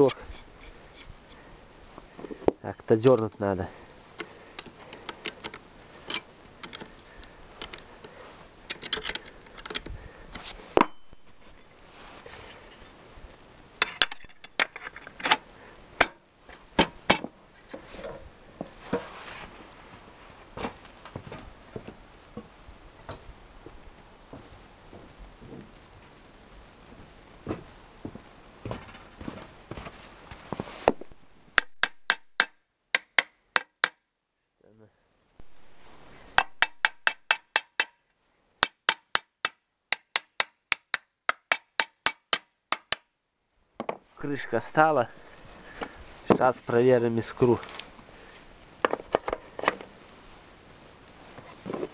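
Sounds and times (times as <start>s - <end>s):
rustling hiss: 0.0s - 31.6s, 34.9s - 36.4s, 44.1s - 51.9s
sharp clicks and knocks of parts: 4.2s - 11.0s, 36.4s - 38.0s
hammer tapping metal: 36.4s - 38.0s, 38.6s - 43.0s.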